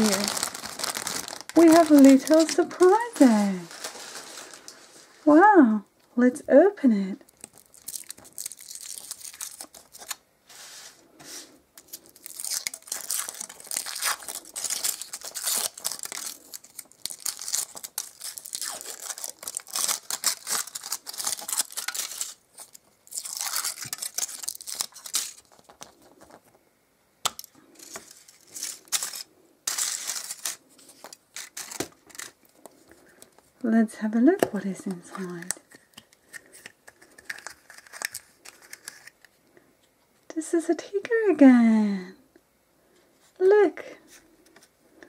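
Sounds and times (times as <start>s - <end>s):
foil wrapper crinkling: 0.0s - 5.3s, 7.3s - 10.2s, 11.8s - 26.5s, 27.3s - 33.5s, 34.8s - 39.3s.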